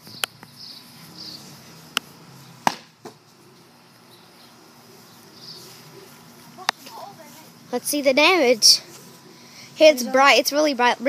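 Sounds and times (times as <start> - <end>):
bat whacking cardboard box: 2.6 - 3.2.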